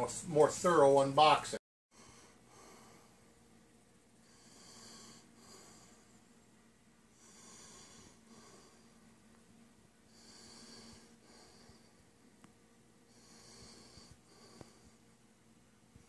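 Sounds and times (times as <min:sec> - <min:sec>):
low steady hum: 0:00.0 - 0:16.0
slow breathing: 0:01.9 - 0:03.4, 0:04.2 - 0:09.3, 0:10.0 - 0:15.2.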